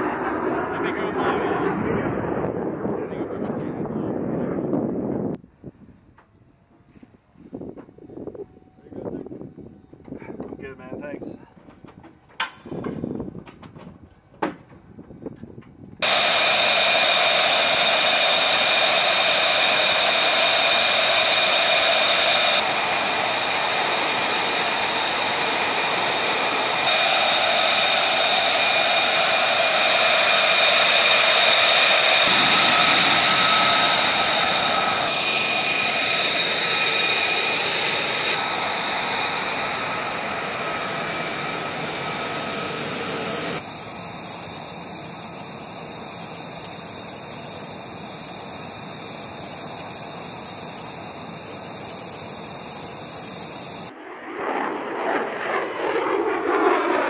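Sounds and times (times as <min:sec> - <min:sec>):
jet engine whine: 0:00.0 - 0:06.8, 0:14.9 - 0:57.0.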